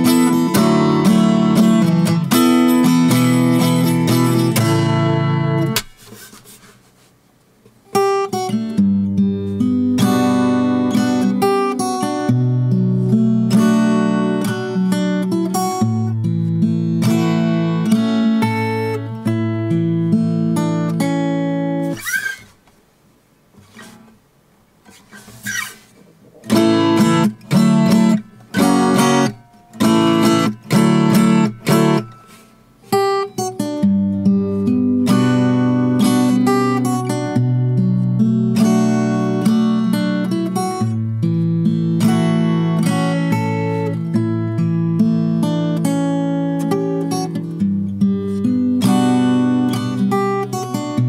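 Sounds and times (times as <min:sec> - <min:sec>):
fingerstyle acoustic guitar: 0:00.0 - 0:22.8, 0:23.4 - 0:51.0.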